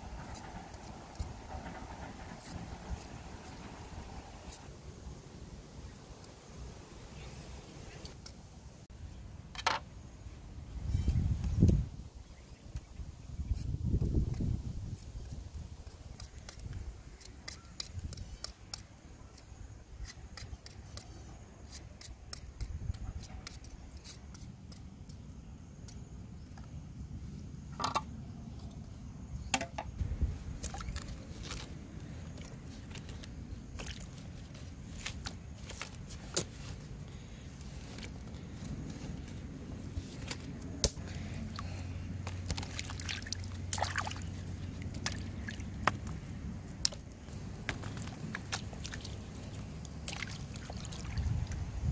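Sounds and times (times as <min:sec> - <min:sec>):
steady low rumble: 0:00.0 - 0:06.9, 0:26.1 - 0:51.9.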